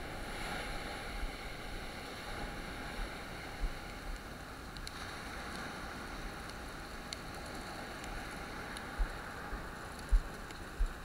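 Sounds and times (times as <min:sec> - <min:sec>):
ocean surf washing on beach: 0:00.0 - 0:11.0
faint ticks: 0:03.6 - 0:11.0.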